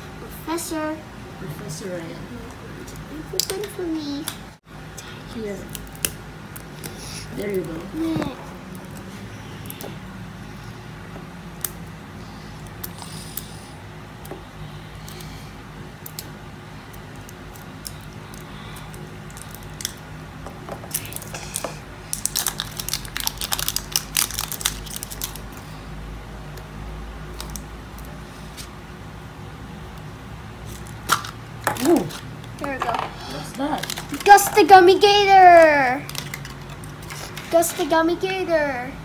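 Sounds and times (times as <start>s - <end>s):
plastic wrapper crinkling: 20.9s - 25.6s, 33.5s - 34.8s, 36.0s - 37.6s.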